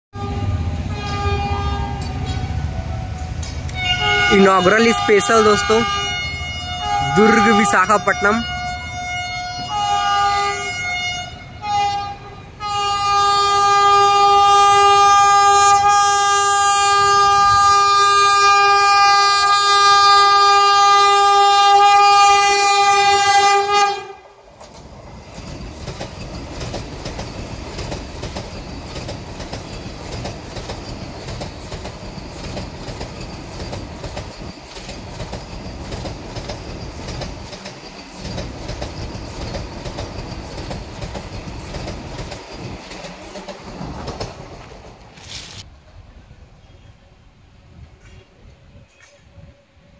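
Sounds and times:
train horn blasts: 0.1s - 24.4s
train wheels clattering on rails: 1.0s - 4.3s, 24.5s - 45.6s.

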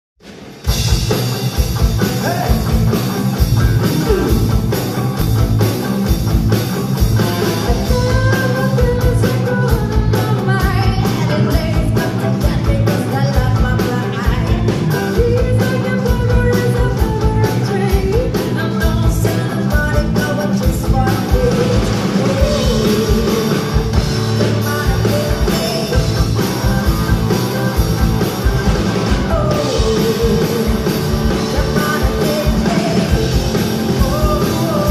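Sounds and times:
live band playing: 0.2s - 34.9s
steady drum beat: 0.2s - 34.9s
woman singing into a microphone: 7.7s - 23.8s, 24.4s - 28.0s, 29.2s - 34.9s.

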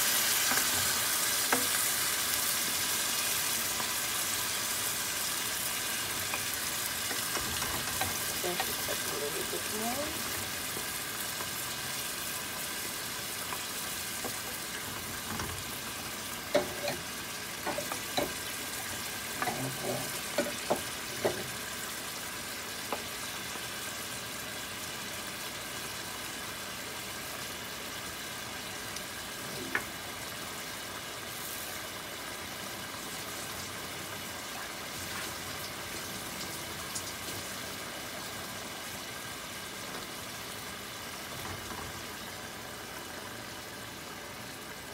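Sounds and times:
fish sizzling in a pan: 0.0s - 44.9s
wooden spoon scraping a pan: 19.3s - 21.5s.

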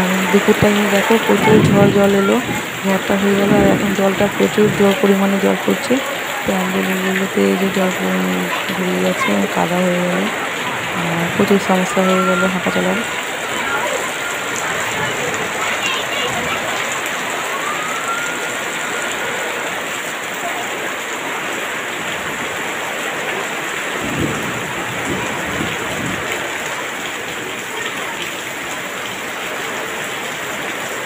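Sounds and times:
heavy rain splashing on ground: 0.0s - 31.0s.

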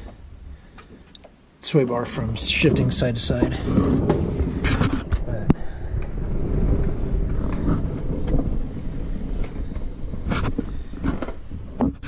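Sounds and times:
camera handling rumble: 3.4s - 8.6s.

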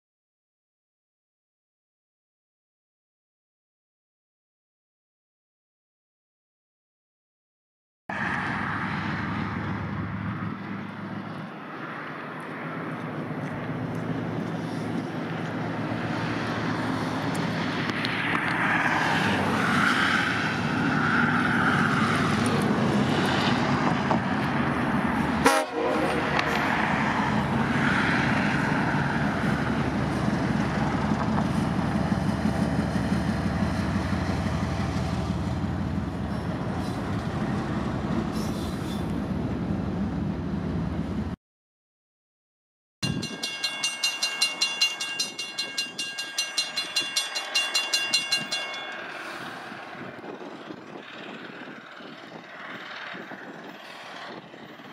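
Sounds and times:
diesel locomotive running: 8.1s - 41.4s, 43.0s - 54.9s
locomotive horn: 25.4s - 26.8s.

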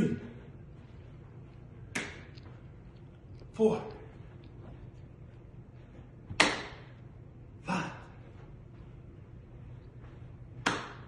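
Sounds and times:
sharp hand clap: 1.9s - 2.4s, 6.3s - 7.0s, 10.6s - 11.0s.

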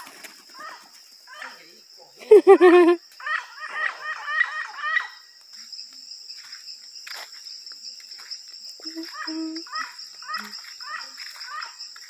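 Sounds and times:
high insect drone: 0.0s - 12.0s
chickens calling: 2.3s - 5.2s.

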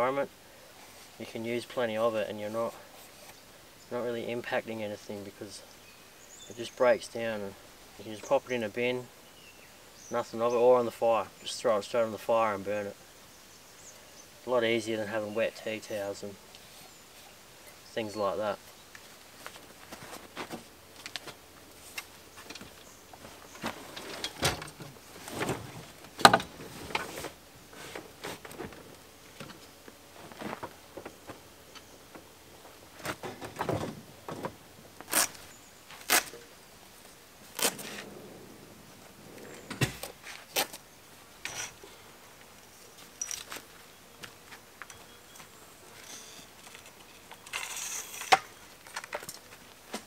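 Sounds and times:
camping gear knocking and rattling: 19.4s - 35.3s, 39.3s - 40.8s.

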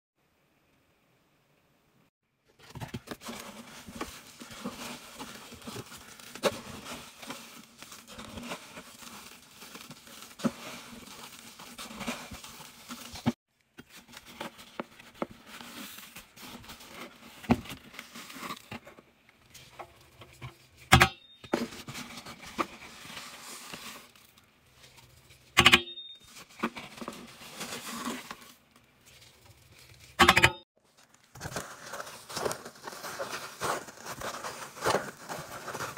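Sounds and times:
cardboard box rustling: 2.5s - 19.0s, 30.9s - 35.9s
powder scooped and poured: 3.1s - 13.4s.

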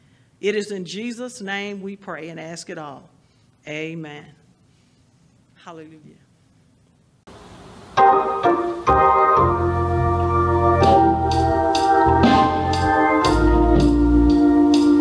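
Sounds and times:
organ chords: 7.3s - 15.0s
bass notes: 8.0s - 15.0s.

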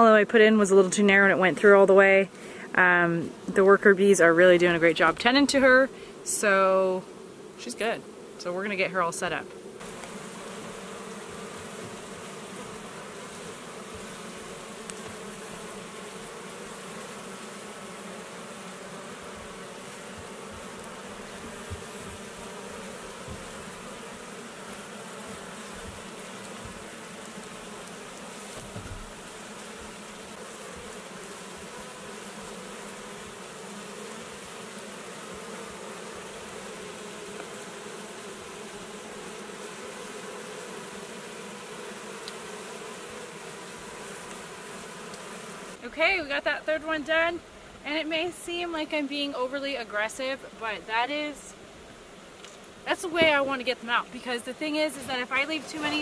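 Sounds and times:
honey bees buzzing: 0.0s - 56.0s.

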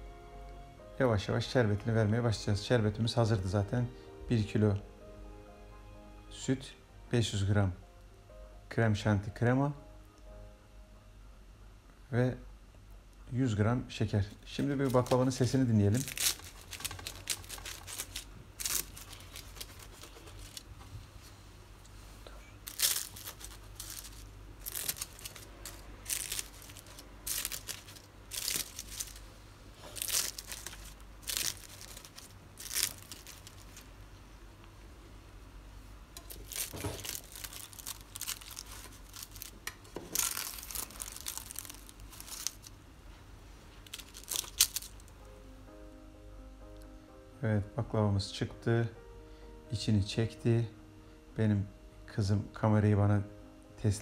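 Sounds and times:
pastry crackling and crunching: 14.1s - 20.9s, 22.5s - 34.0s, 36.2s - 42.8s, 43.7s - 45.2s.

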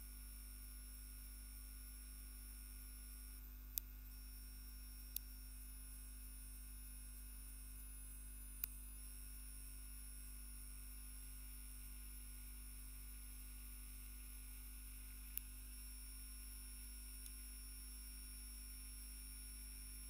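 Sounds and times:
faint electrical hum: 0.0s - 20.0s
faint click: 5.1s - 5.3s, 8.6s - 8.8s, 15.3s - 15.5s, 17.1s - 17.4s.

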